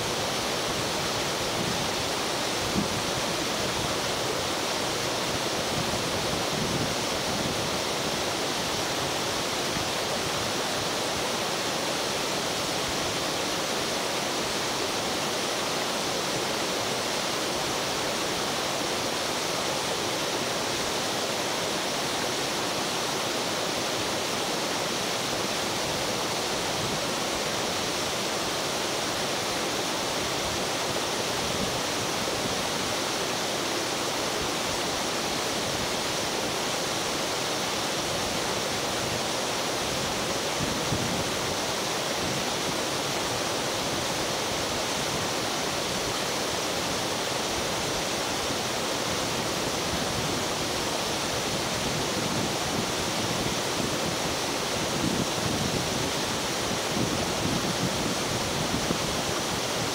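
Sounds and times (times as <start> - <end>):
waterfall rushing: 0.0 - 59.9.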